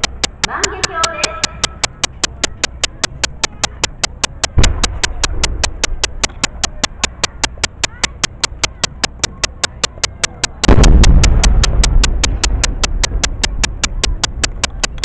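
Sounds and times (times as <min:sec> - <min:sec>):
steady clicking: 0:00.0 - 0:15.0
firework boom: 0:10.7 - 0:11.8.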